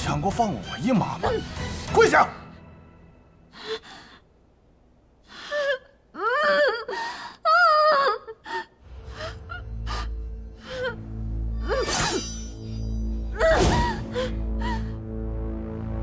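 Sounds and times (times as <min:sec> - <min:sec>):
low dark music drone: 0:08.8 - 0:16.0.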